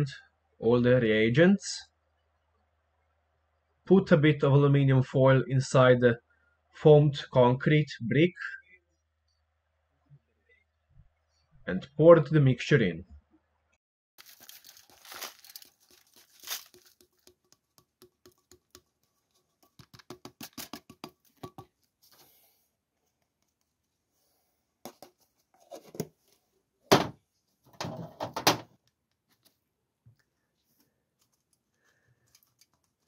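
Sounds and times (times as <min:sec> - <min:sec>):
aluminium foil crinkling: 0:14.2 - 0:17.4, 0:31.2 - 0:33.0
patter of falling grains: 0:14.2 - 0:17.4.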